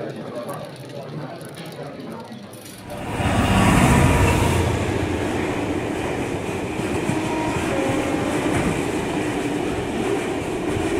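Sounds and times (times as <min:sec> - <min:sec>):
train rumbling along track: 0:02.7 - 0:10.9.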